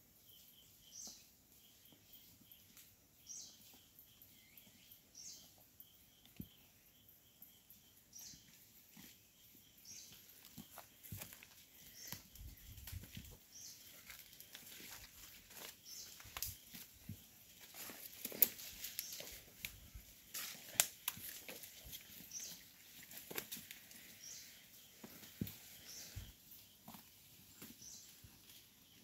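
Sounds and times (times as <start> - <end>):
footsteps through leaf litter: 12.9 - 22.6.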